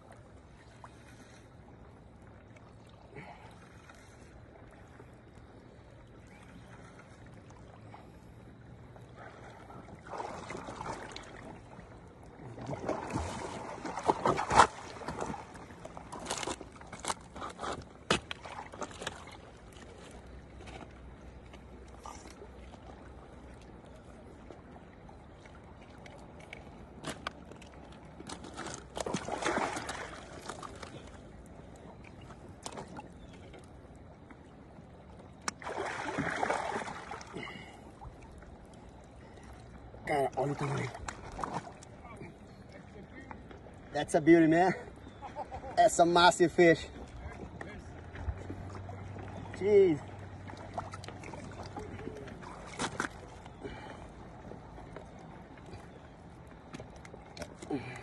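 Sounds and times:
water splashing at rocky shoreline: 0:09.2 - 0:20.5, 0:25.1 - 0:33.4, 0:35.1 - 0:42.2, 0:48.1 - 0:58.0.

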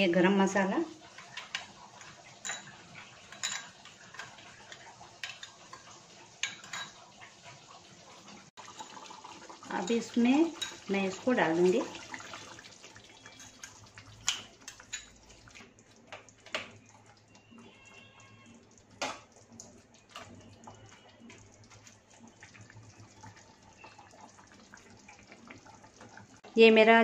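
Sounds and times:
gravy simmering: 0:00.0 - 0:27.0
metal spoon clinking on pan: 0:01.2 - 0:07.0, 0:09.8 - 0:10.8, 0:13.3 - 0:15.2
liquid pouring into gravy: 0:08.6 - 0:10.9.

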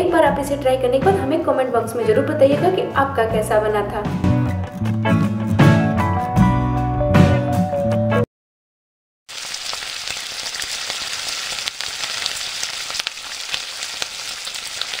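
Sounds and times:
food sizzling in hot oil: 0:09.3 - 0:15.0.

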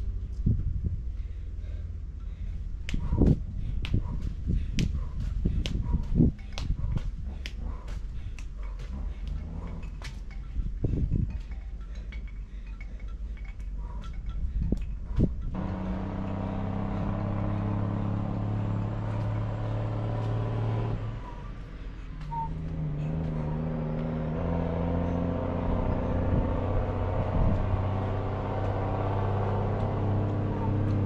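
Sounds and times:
engine humming: 0:00.0 - 0:31.0
light clinks: 0:05.1 - 0:17.8.

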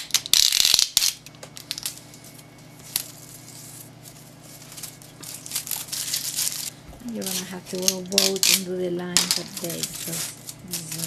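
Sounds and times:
steady low hum: 0:00.0 - 0:11.0
paper rustling: 0:02.2 - 0:11.0.

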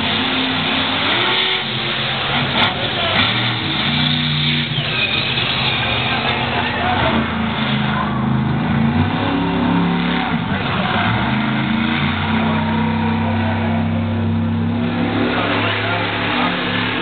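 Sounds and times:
monster truck engine revving: 0:00.0 - 0:17.0.

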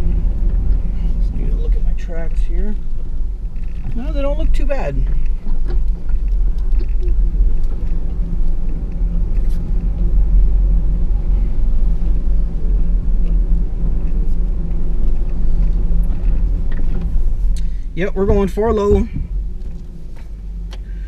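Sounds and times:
truck engine low rumble: 0:00.0 - 0:21.0.

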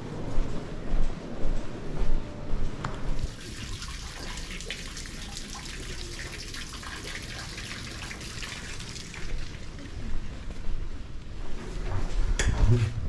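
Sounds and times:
fountain water splashing into basin: 0:03.2 - 0:09.8.

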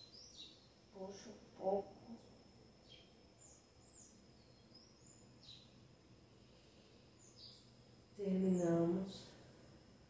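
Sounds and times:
faint high bird chirps: 0:00.0 - 0:05.8, 0:06.4 - 0:09.3
faint steady high tone: 0:00.0 - 0:10.0.

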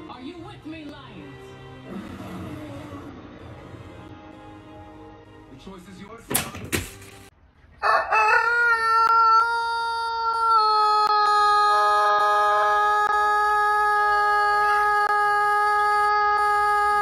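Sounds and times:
rooster crowing: 0:07.8 - 0:13.3.

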